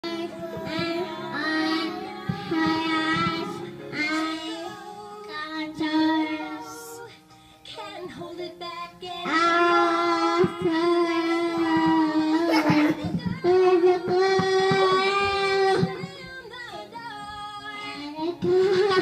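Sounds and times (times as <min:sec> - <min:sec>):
children singing: 0:00.0 - 0:07.1, 0:09.1 - 0:16.3.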